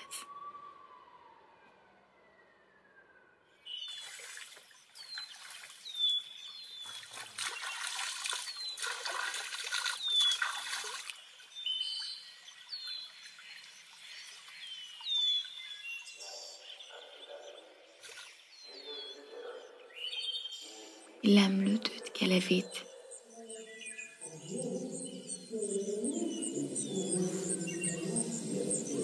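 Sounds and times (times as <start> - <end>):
bird chirping: 0.0 - 0.3, 3.2 - 29.0
stream water trickling: 3.7 - 16.1
water splashing poured over head: 3.9 - 6.2, 6.9 - 11.2.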